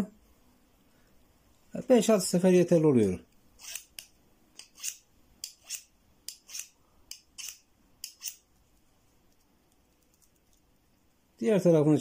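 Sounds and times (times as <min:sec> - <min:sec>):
knife scraping scissor blade: 0:03.6 - 0:08.4.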